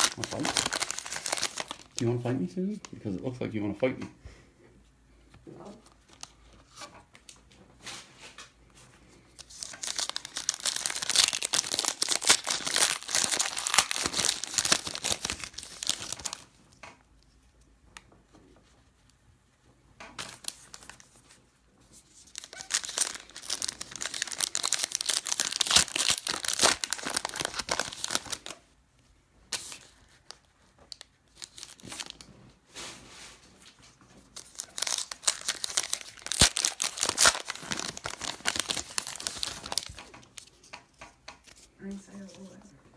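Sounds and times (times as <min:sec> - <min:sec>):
wrappers tearing and crinkling: 0:00.0 - 0:02.2, 0:09.4 - 0:16.5, 0:22.1 - 0:28.6, 0:29.5 - 0:32.3, 0:34.3 - 0:40.5.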